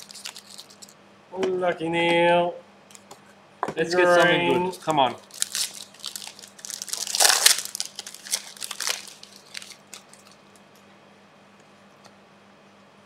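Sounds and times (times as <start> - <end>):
plastic wrappers crinkling: 0.0 - 1.0, 5.2 - 10.8.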